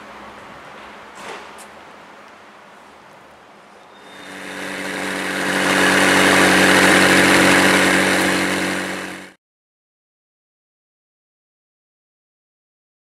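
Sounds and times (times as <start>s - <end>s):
car engine loud steady note: 4.2s - 9.4s.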